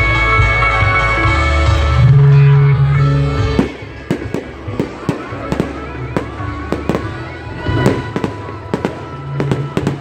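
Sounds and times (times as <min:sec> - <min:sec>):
fireworks bangs and pops: 0:03.5 - 0:10.0.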